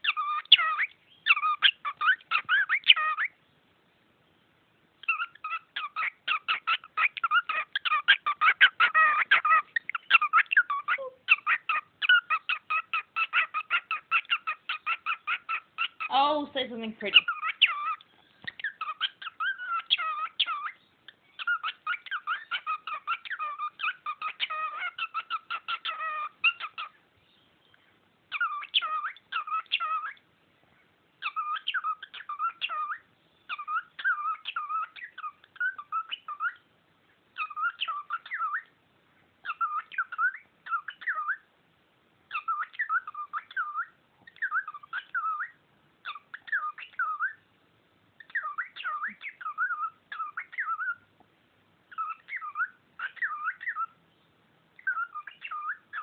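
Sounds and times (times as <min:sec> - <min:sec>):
cockatiel chirping: 0:00.0 - 0:03.4, 0:05.0 - 0:16.1, 0:16.9 - 0:30.2, 0:31.2 - 0:36.6, 0:37.4 - 0:38.8, 0:39.4 - 0:41.5, 0:42.3 - 0:47.4, 0:48.2 - 0:51.1, 0:51.9 - 0:54.0, 0:54.8 - 0:56.0
cockatiel whistling: 0:37.4 - 0:38.7, 0:39.4 - 0:41.4, 0:42.3 - 0:47.4, 0:48.2 - 0:51.0, 0:51.9 - 0:54.0, 0:54.8 - 0:56.0.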